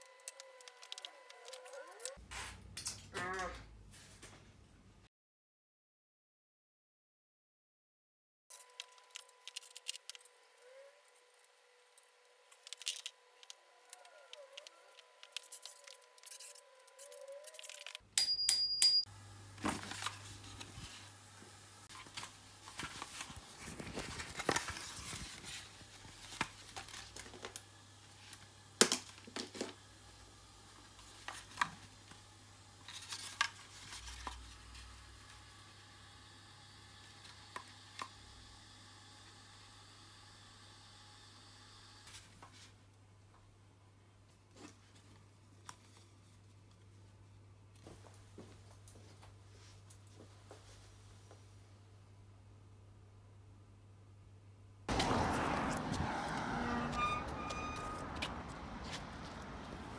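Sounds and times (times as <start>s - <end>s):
bike parts clicking and knocking: 17.6s - 19.0s.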